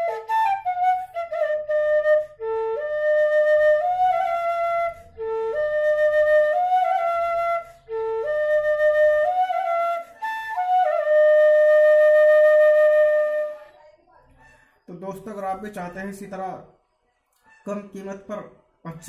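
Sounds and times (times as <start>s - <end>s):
bamboo flute melody: 0.0s - 13.7s.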